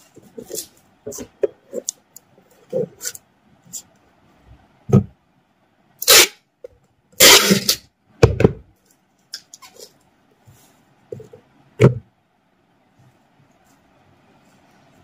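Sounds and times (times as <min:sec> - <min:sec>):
packing tape ripping: 0:07.2 - 0:07.8.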